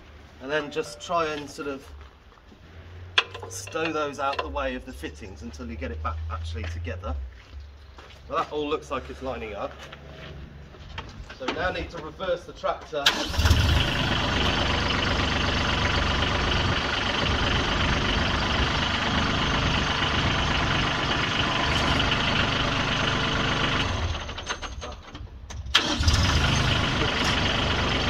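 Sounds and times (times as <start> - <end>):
tractor engine running: 13.0 - 28.0.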